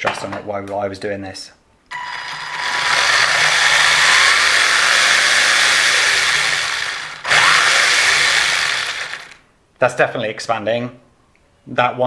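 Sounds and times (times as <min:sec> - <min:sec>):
electric motor whirring whine: 0:01.9 - 0:09.4.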